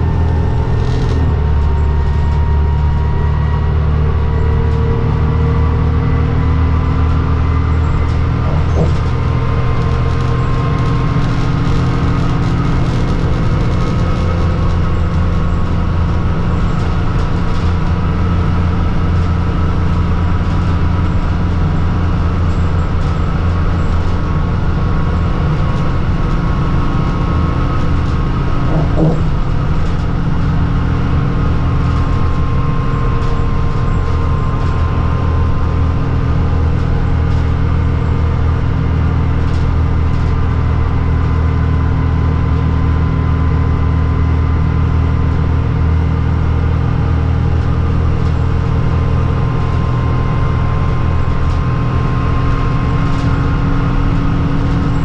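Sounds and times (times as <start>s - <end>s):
bus engine drone: 0.0s - 55.0s
road noise: 0.0s - 55.0s.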